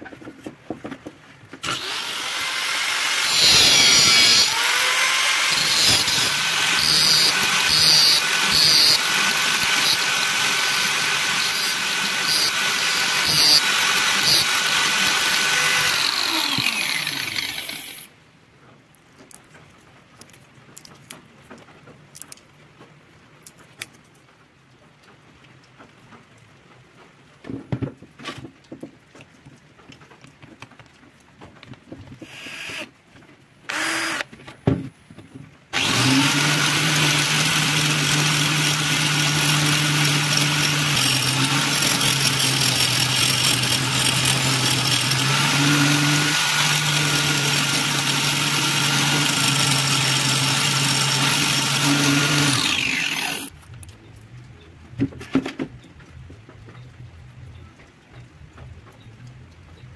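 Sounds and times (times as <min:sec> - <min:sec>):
angle grinder running: 0:01.6 - 0:18.1, 0:33.7 - 0:34.2, 0:35.8 - 0:53.5.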